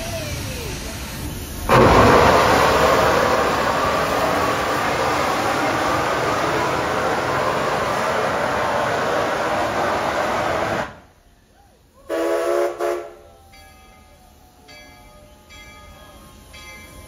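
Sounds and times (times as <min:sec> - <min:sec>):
steam locomotive hissing: 0:00.0 - 0:17.0
steam whistle blast: 0:01.7 - 0:11.2, 0:12.0 - 0:13.6.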